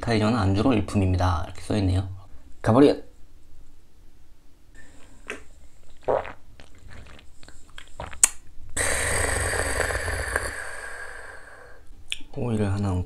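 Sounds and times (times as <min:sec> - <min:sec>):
sharp mouth click: 0:07.7 - 0:08.4
man exhaling harshly: 0:08.8 - 0:11.9.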